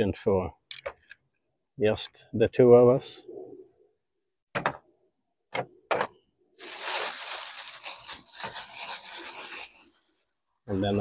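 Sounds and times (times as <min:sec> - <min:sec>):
plastic bag crinkling: 0:06.6 - 0:09.9.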